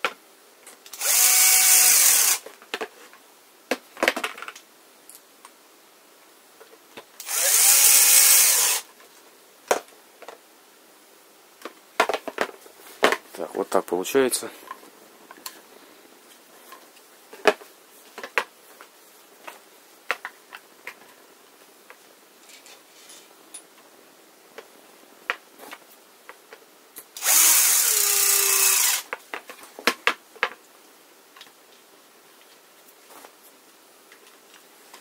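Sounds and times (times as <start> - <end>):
cordless drill running: 0.9 - 2.4, 7.2 - 8.8, 27.2 - 29.1
plastic parts clicking and knocking: 2.4 - 3.1, 3.7 - 4.6, 11.6 - 13.3, 19.4 - 21.1, 29.1 - 30.6.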